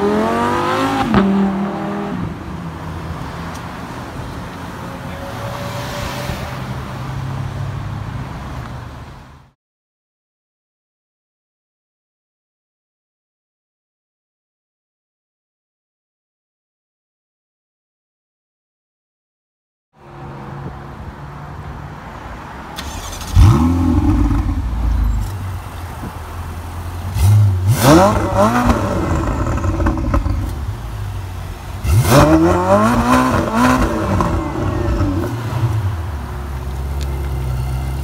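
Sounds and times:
car engine idling and revving: 0:00.0 - 0:09.0, 0:22.2 - 0:38.0.

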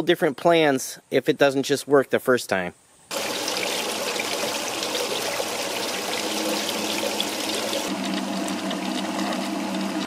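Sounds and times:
pump humming: 0:03.1 - 0:10.0
water pouring and splashing: 0:03.1 - 0:10.0.

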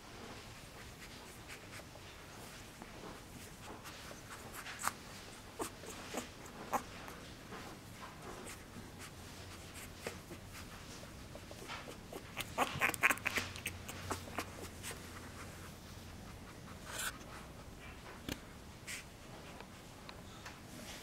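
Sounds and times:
puppy scratching on blanket: 0:00.3 - 0:18.0.

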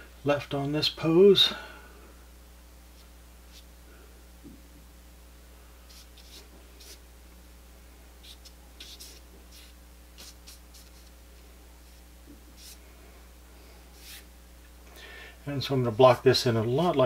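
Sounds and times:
faint steady hum: 0:00.0 - 0:17.0
brush swishing on paper: 0:02.9 - 0:03.7, 0:05.9 - 0:07.0, 0:08.2 - 0:11.1, 0:11.8 - 0:12.8, 0:13.9 - 0:14.3.

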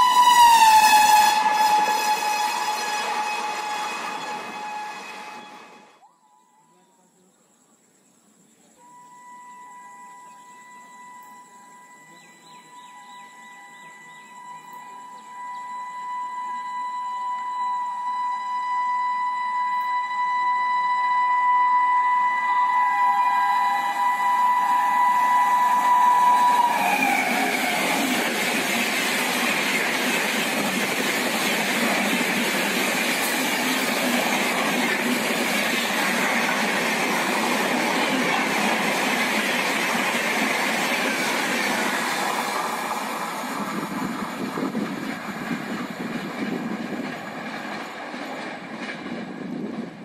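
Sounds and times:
train rushing past: 0:00.0 - 0:06.0, 0:22.0 - 0:50.0
train horn: 0:00.0 - 0:06.8, 0:08.8 - 0:44.8.

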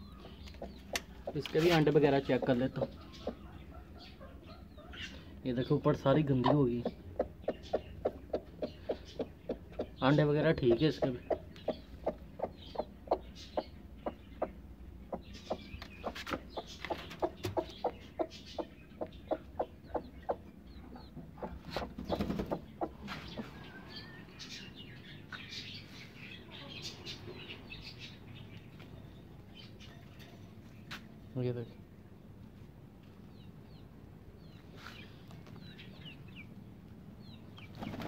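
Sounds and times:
hen clucking: 0:00.0 - 0:24.6.

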